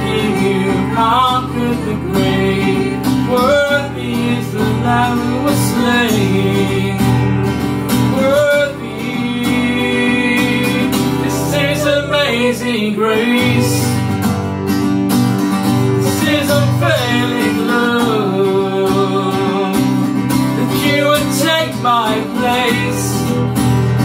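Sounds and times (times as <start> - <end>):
man and woman singing: 0.0 - 14.2, 16.0 - 23.3
acoustic guitar: 0.0 - 24.0.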